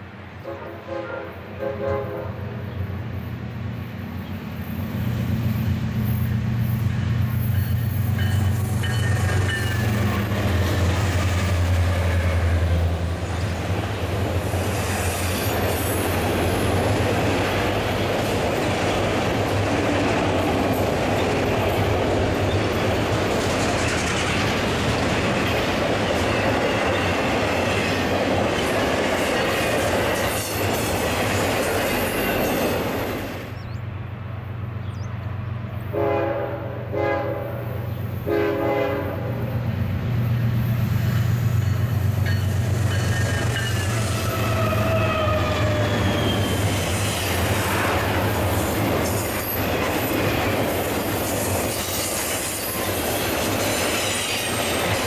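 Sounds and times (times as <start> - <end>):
diesel locomotives passing: 0.0 - 55.0
train air horn blasts: 0.4 - 2.6, 35.9 - 39.5
train wheels rolling: 3.1 - 33.8, 39.5 - 55.0
train cars clattering: 4.6 - 33.6, 40.3 - 55.0
wheel squeal: 43.0 - 46.8.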